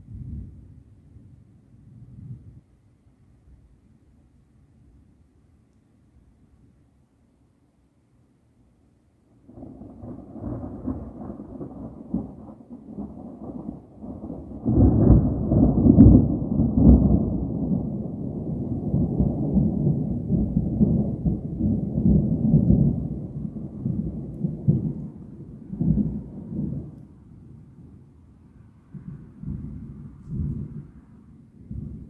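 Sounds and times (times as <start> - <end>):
rolling thunder: 0.0 - 2.6, 9.5 - 28.1, 28.8 - 32.0.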